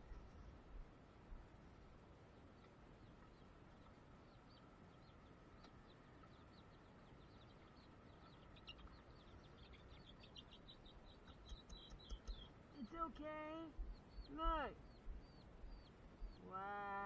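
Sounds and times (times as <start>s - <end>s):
chicks peeping: 3.0s - 16.5s.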